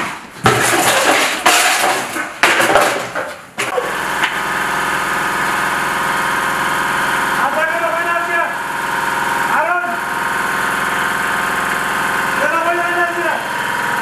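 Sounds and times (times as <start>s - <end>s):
engine running steadily: 3.7s - 14.0s.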